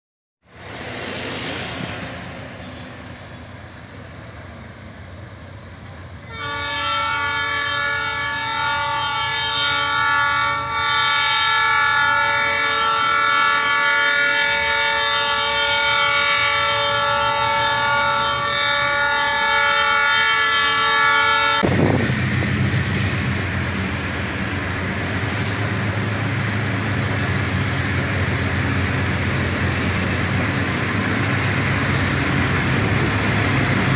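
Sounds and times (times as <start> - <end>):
diesel engines rumbling: 0.5 - 6.6, 21.6 - 33.9
locomotive air horn chord: 6.2 - 21.7.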